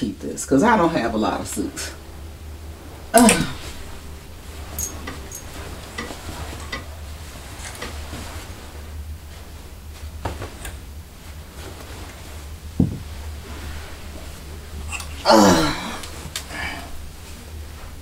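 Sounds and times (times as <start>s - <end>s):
low steady hum: 0.0s - 18.0s
garment rustling: 1.1s - 18.0s
loud thump: 12.8s - 13.1s.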